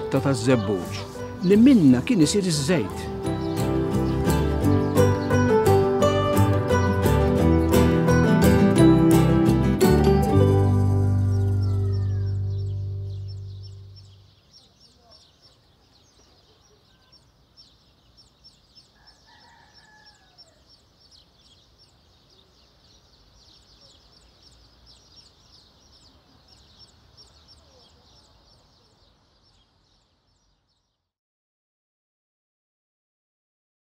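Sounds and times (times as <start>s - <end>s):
rapid high bird chirping: 0.0s - 6.0s, 10.4s - 31.1s
rooster crowing: 11.3s - 12.7s, 19.0s - 20.7s.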